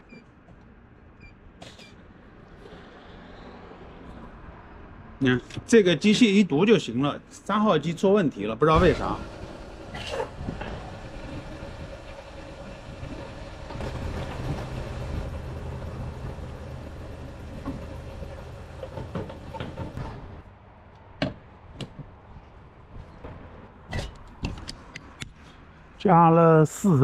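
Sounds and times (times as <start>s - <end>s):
fuel pump humming: 8.8s - 20.4s.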